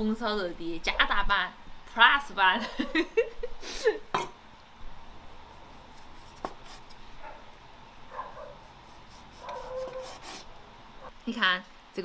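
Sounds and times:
cleaver scraping through meat: 0:08.7 - 0:10.5.

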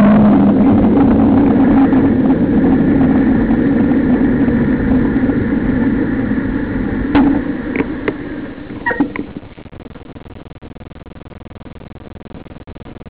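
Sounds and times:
motorcycle engine running: 0:00.0 - 0:09.5.

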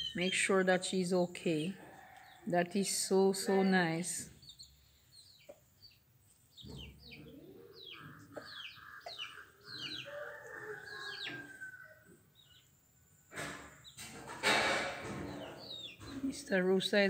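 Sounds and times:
high falling bird chirps: 0:00.0 - 0:00.6, 0:04.2 - 0:12.8.

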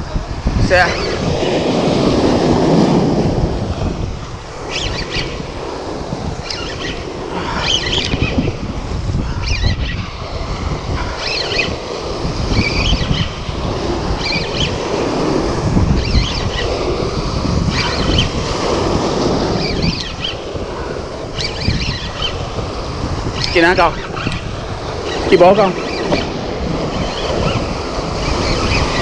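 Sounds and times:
wind buffeting microphone: 0:00.0 - 0:29.0
surf breaking on rocks: 0:00.2 - 0:09.1, 0:10.1 - 0:29.0.

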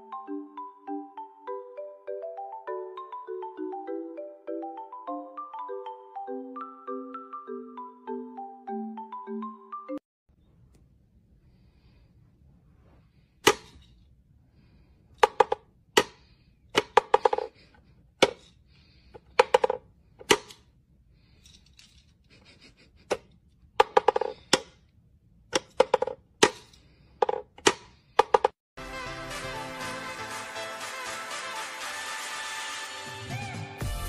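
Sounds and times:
wooden toy knocks: 0:15.2 - 0:16.2, 0:23.8 - 0:24.7.

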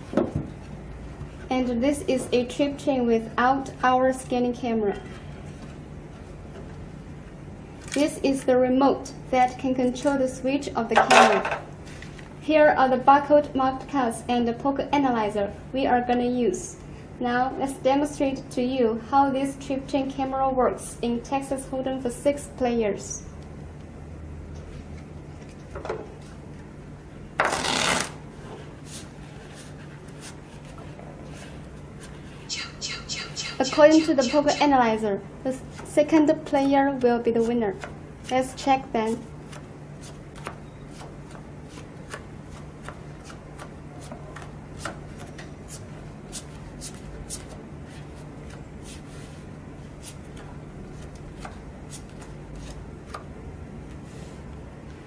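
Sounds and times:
steady low hum: 0:00.0 - 0:55.0
playing cards riffling: 0:27.4 - 0:28.2.

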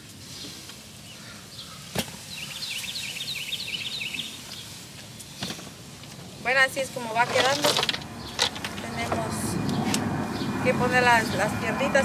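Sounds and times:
steady background hiss: 0:00.0 - 0:11.9
small bird twittering: 0:01.1 - 0:05.6.

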